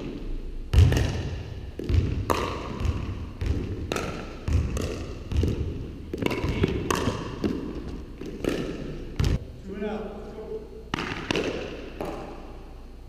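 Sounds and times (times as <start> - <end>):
paddles striking balls: 0.0 - 9.4, 10.9 - 12.5
balls bouncing on wooden floor: 0.7 - 9.4.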